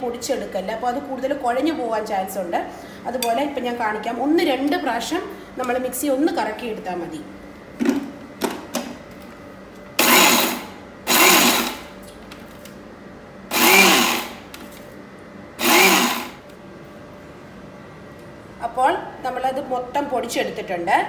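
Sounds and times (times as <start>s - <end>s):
mixer grinder motor pulsing: 10.0s - 11.9s, 13.5s - 14.7s, 15.6s - 16.4s.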